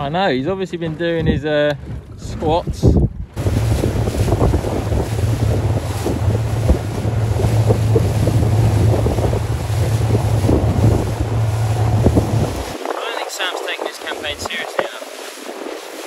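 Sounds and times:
choppy sea water: 0.0 - 16.0
wind buffeting microphone: 0.0 - 16.0
steady low hum: 3.4 - 12.7.

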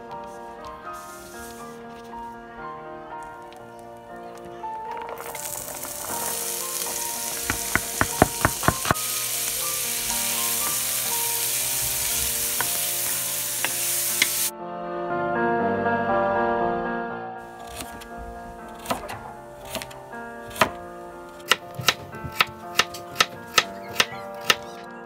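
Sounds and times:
wooden spoon stirring in pot: 4.8 - 9.6, 10.3 - 14.5
vegetables sizzling in butter: 4.9 - 14.5
spoon knocking against pot: 7.4 - 9.0.

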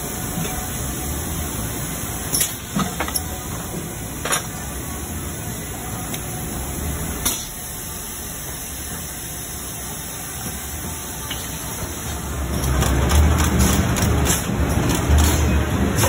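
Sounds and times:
factory machinery humming: 0.0 - 16.0.

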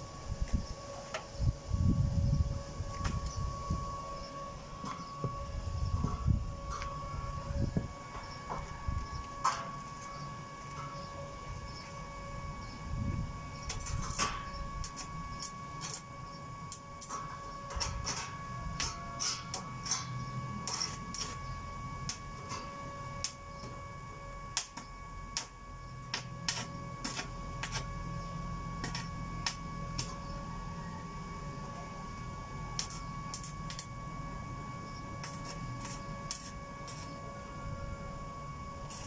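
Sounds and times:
welding machine whine and hum: 0.0 - 39.0
welding arc crackling: 13.5 - 30.6, 31.5 - 34.3, 35.1 - 37.5, 38.8 - 39.0.

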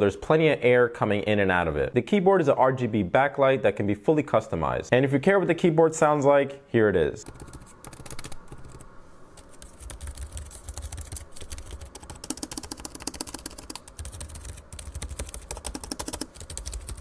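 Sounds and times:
laptop keyboard typing: 7.2 - 17.0.

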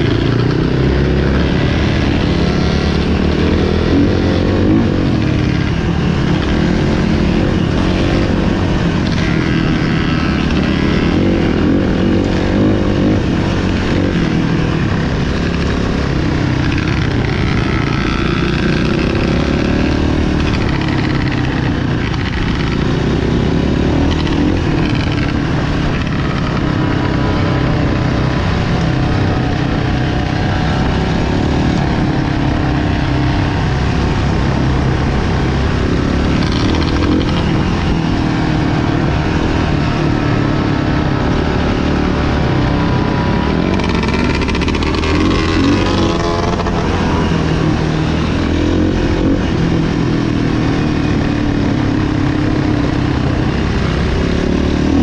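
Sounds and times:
dirt bike engines revving: 0.0 - 55.0.

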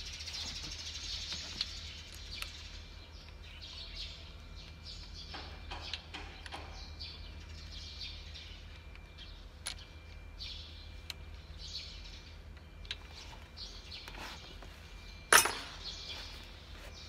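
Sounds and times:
low steady hum: 0.0 - 17.0
sharp metal clank: 15.3 - 15.9.

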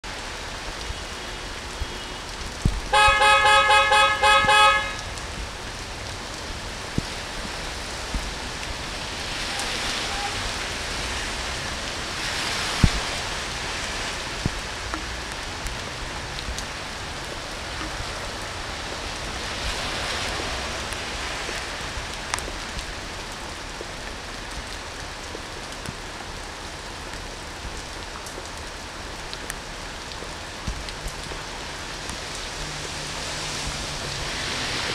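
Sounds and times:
heavy rain on street: 0.0 - 34.9
vehicle horn short toots: 2.9 - 5.0.

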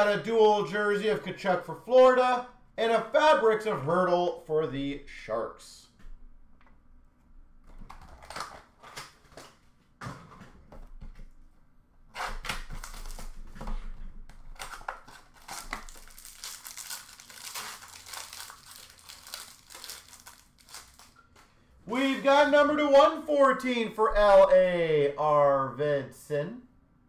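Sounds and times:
foil wrapper crinkling and tearing: 7.8 - 9.5, 12.2 - 13.4, 14.4 - 21.2.

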